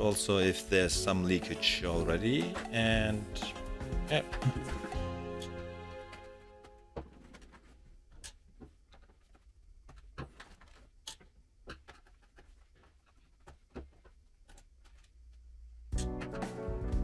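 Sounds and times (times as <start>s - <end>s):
hands handling plastic case: 6.1s - 15.4s.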